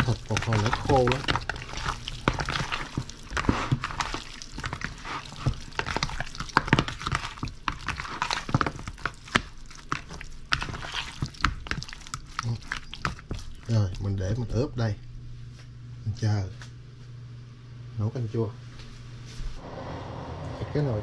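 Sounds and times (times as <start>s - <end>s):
wet squelches of meat in marinade: 0.0s - 14.2s.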